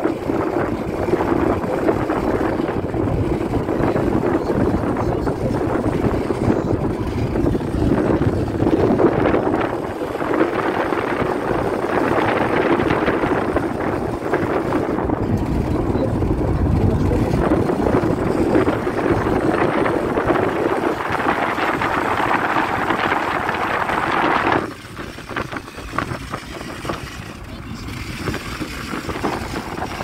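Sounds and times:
car wind and road noise: 0.0s - 30.0s.

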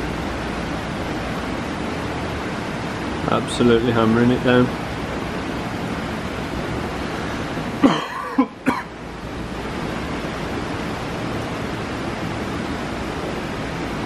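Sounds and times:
heavy rain pouring: 0.0s - 14.0s
person coughing: 7.8s - 8.9s.

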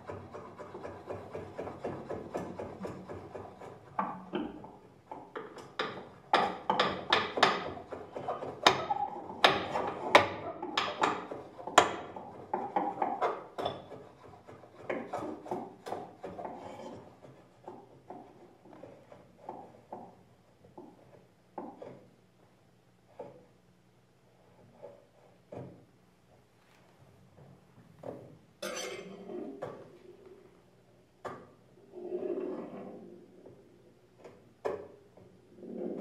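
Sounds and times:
scratchy rubbing on tabletop: 11.3s - 19.9s, 32.0s - 33.3s.

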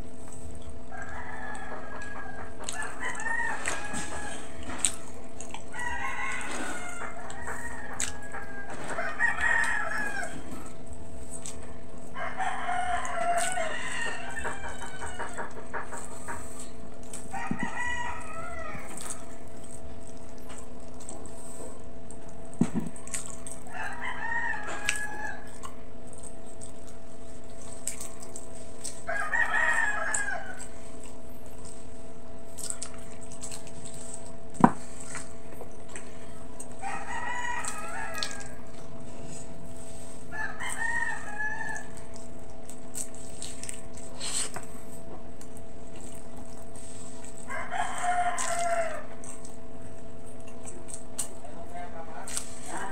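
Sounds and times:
steady low hum: 0.0s - 52.9s
roosters crowing: 0.9s - 10.9s, 12.1s - 19.4s, 23.6s - 25.8s, 28.9s - 30.9s, 36.1s - 42.4s, 47.4s - 49.4s.

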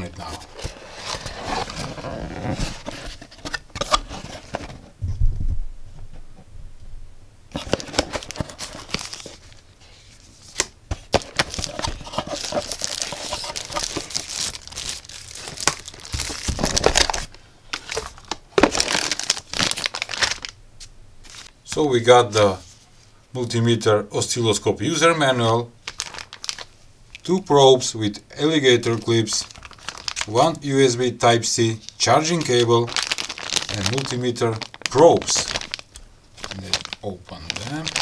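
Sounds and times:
tissue paper and plastic crinkling: 0.0s - 4.8s, 7.5s - 20.6s, 25.8s - 27.2s, 28.6s - 38.0s.

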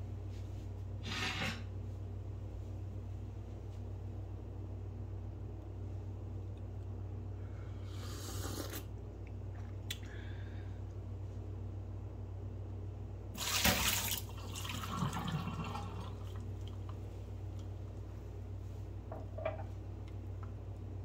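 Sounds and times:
steady low hum: 0.0s - 21.0s
tea splashing into metal sink: 13.4s - 16.8s.

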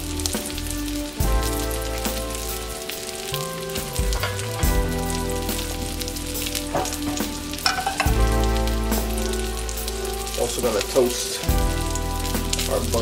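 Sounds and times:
background music: 0.0s - 13.0s
fish sizzling in oil: 0.0s - 13.0s
pan knocking on stove grate: 6.7s - 8.3s.

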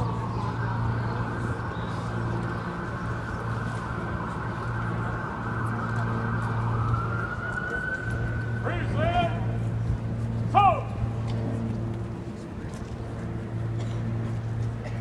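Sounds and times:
police siren wailing and yelping: 0.0s - 9.5s
low engine hum: 0.0s - 15.0s.

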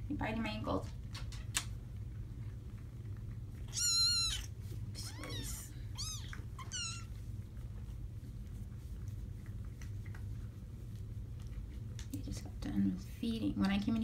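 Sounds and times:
kittens mewing: 3.6s - 7.2s.

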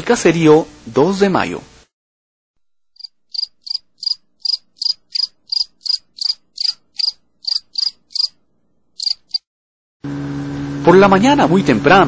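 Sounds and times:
animal high chirps: 3.0s - 8.4s, 9.0s - 9.4s.

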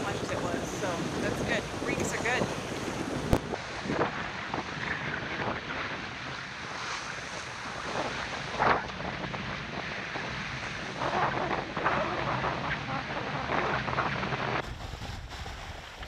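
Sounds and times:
waves rushing along hull: 0.0s - 16.0s
wind buffeting microphone: 0.0s - 16.0s.

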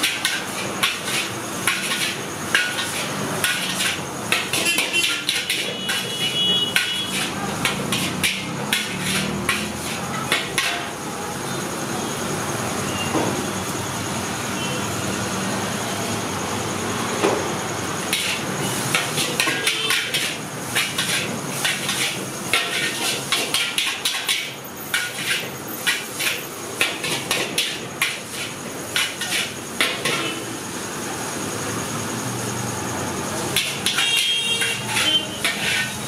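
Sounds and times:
metal spatula striking wok: 0.0s - 11.0s, 18.0s - 30.4s, 33.5s - 36.0s.

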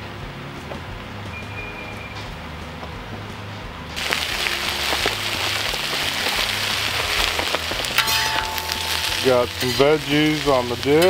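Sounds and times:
vegetables sizzling and crackling: 4.0s - 11.0s.

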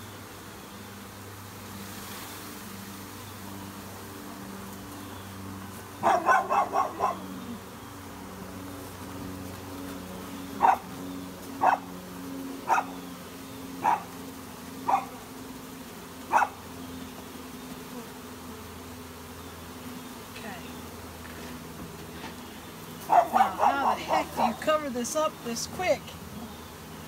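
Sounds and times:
bee swarm humming: 0.0s - 27.0s
dog barking: 6.0s - 7.2s, 10.6s - 10.8s, 11.6s - 11.8s, 12.7s - 12.9s, 13.8s - 14.1s, 14.9s - 15.2s, 16.3s - 16.6s, 23.1s - 24.4s.

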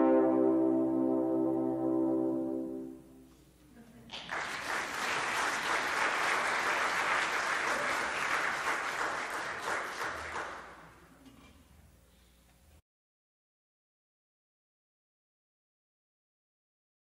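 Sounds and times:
audience applause: 4.1s - 10.9s.

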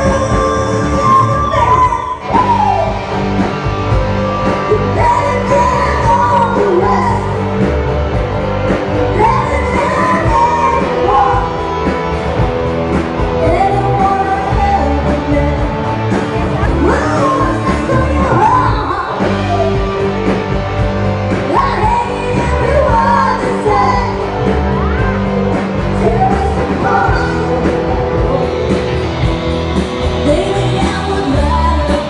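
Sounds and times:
woman singing into a microphone: 0.0s - 3.0s, 4.6s - 7.5s, 9.1s - 11.6s, 13.4s - 16.0s, 16.6s - 19.8s, 21.5s - 25.2s, 26.0s - 27.7s, 30.2s - 32.0s
live rock band playing: 0.0s - 32.0s.

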